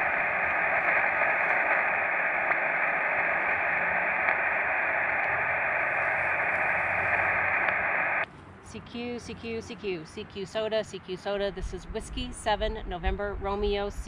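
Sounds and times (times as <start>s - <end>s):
radio static hiss: 0.0s - 8.2s.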